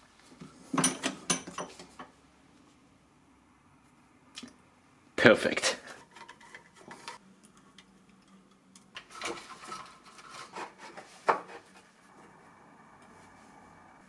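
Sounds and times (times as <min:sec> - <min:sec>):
faint electric motor whine: 0:06.8 - 0:14.0.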